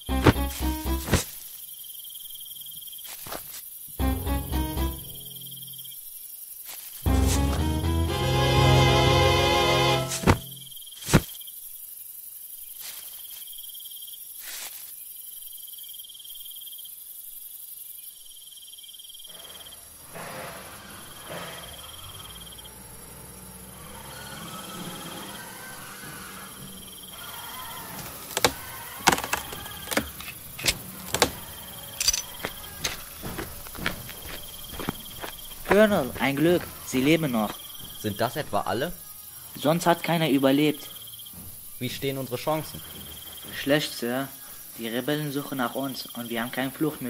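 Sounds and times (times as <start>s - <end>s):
crickets chirping: 0.0s - 47.0s
soundtrack music: 4.0s - 5.5s, 7.1s - 10.6s.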